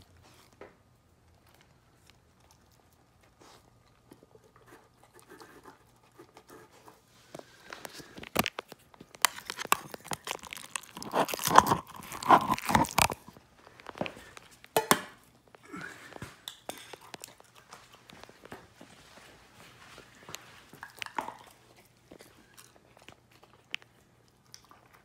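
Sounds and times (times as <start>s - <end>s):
dog chewing food: 0.0s - 25.0s.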